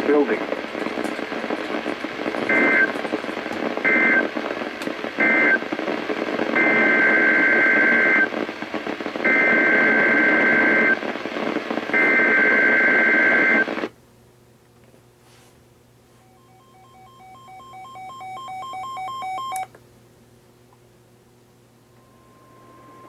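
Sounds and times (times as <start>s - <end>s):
radio static hiss: 0.0s - 13.9s.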